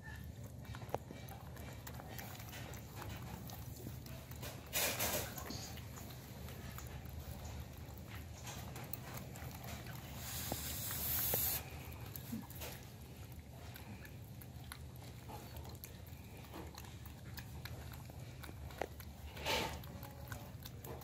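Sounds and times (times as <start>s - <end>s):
steady low hum: 0.0s - 21.0s
short hiss: 10.2s - 11.6s.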